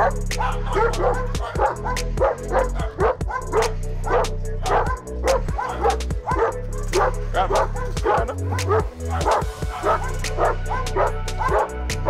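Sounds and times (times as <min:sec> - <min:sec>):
background music with bass: 0:00.0 - 0:12.0
dog barking: 0:00.0 - 0:12.0.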